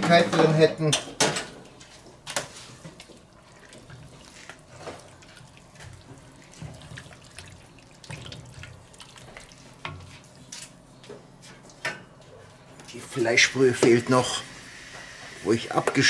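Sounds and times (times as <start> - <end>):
stew sloshing and squelching: 2.0 - 10.9.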